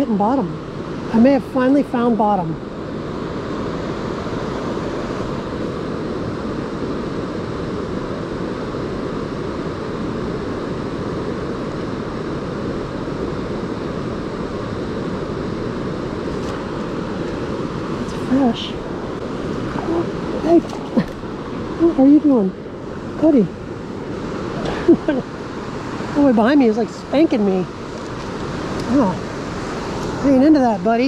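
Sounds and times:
river current rushing: 0.0s - 31.0s.

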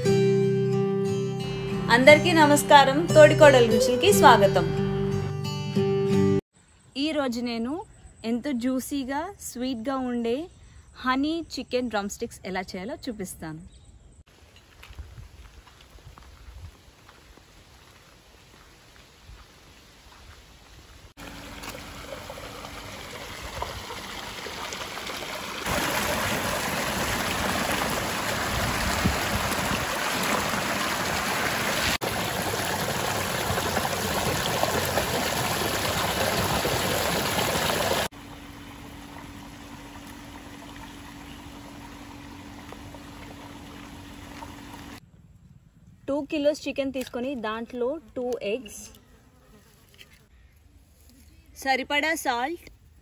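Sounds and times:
water gushing into concrete tank: 21.2s - 38.2s, 38.8s - 45.0s
steady low hum: 38.1s - 46.0s.

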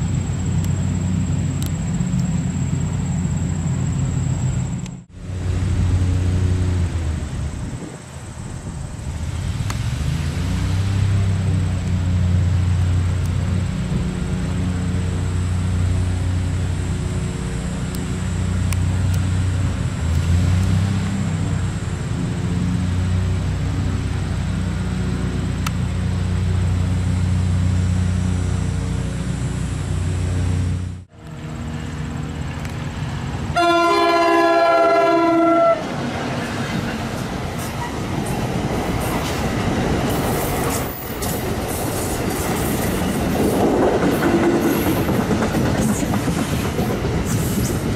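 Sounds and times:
low engine drone: 0.0s - 33.9s
train air horn: 33.5s - 36.0s.

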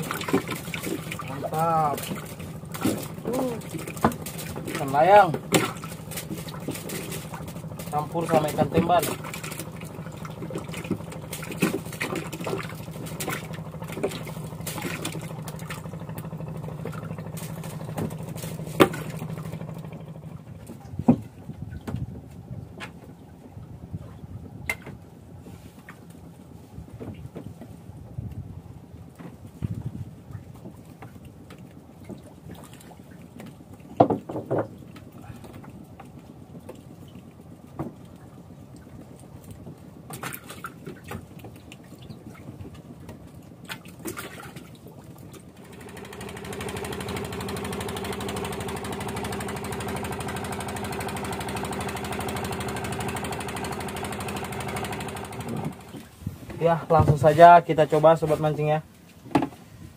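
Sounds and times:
sharp knocks on boat: 0.0s - 23.1s, 26.8s - 27.8s, 29.1s - 35.7s, 37.7s - 38.1s, 54.3s - 57.4s, 59.2s - 59.6s
low engine hum: 0.0s - 59.9s
water lapping at boat: 0.0s - 59.9s
clicks and knocks on wooden deck: 34.0s - 34.8s, 59.3s - 59.6s.

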